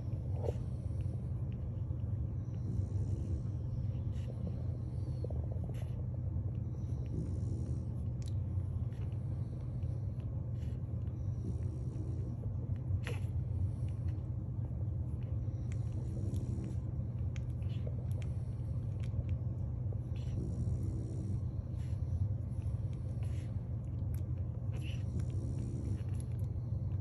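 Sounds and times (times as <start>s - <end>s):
puppies suckling clicks: 0.0s - 2.6s, 7.8s - 20.4s, 21.4s - 27.0s
puppies grunting and whimpering: 0.0s - 27.0s
steady low hum: 0.0s - 27.0s.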